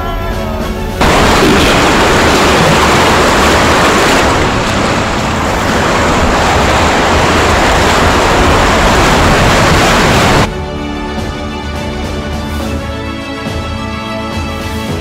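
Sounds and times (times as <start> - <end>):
river water rushing: 1.0 - 10.5.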